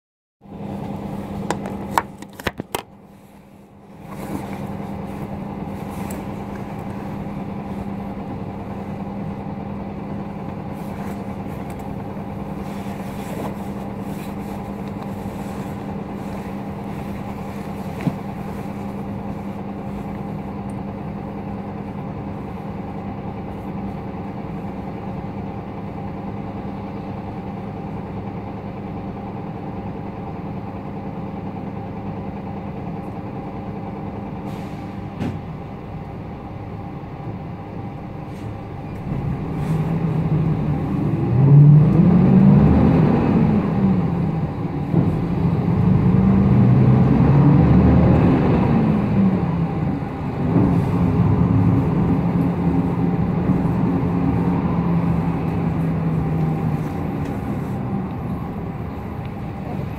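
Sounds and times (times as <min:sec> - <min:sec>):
bus engine idling: 0:00.4 - 0:59.9.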